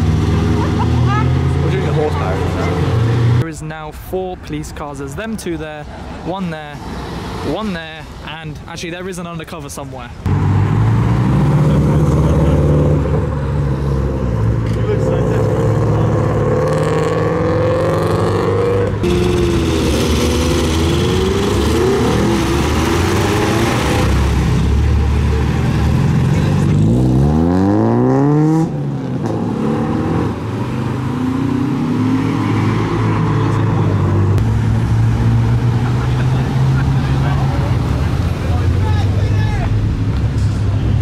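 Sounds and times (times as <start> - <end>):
cars pulling away: 0.0 - 3.5, 10.2 - 41.0
engine revving sharply: 10.3 - 30.3.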